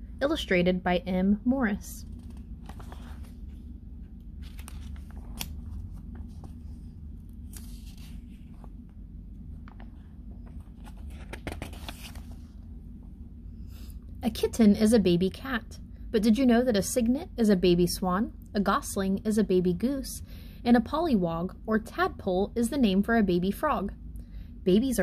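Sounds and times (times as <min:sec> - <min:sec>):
low hum: 0:00.0 - 0:20.5
book pages rustling: 0:02.0 - 0:12.7.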